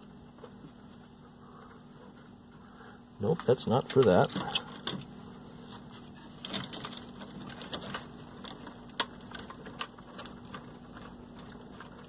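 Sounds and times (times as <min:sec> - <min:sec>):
faint steady hum: 0:00.0 - 0:12.0
wires rustling: 0:03.2 - 0:12.0.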